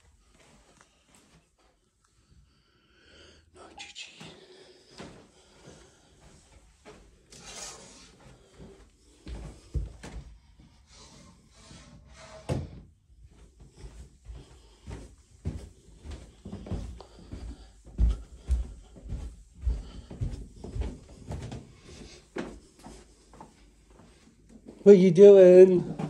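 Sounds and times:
footsteps on carpeted stairs: 0.0 - 2.4, 4.9 - 7.3, 8.1 - 11.3, 12.5 - 24.8.

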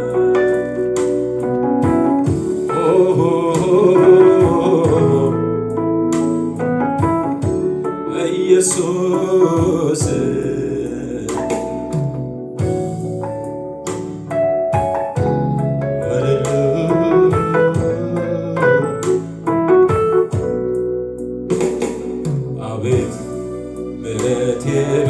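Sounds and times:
keyboard accompaniment: 0.0 - 25.0
person singing: 2.5 - 5.8, 8.0 - 11.9, 16.0 - 19.6, 22.6 - 25.0.

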